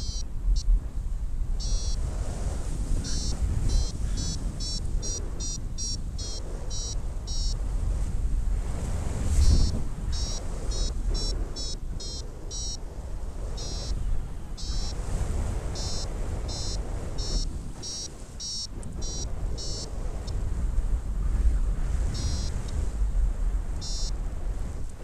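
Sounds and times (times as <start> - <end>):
variometer beeping: 0.0 - 0.7, 1.6 - 2.0, 3.0 - 7.6, 9.4 - 12.8, 14.6 - 15.0, 15.8 - 19.9, 22.1 - 22.6, 23.8 - 24.2
wind on microphone: 0.0 - 25.0.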